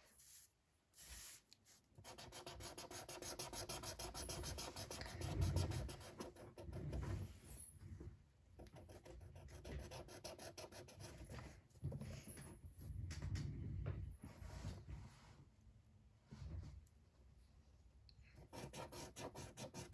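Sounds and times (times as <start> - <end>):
marker scratching on paper: 0.0 - 7.3, 8.6 - 11.4, 18.4 - 19.9.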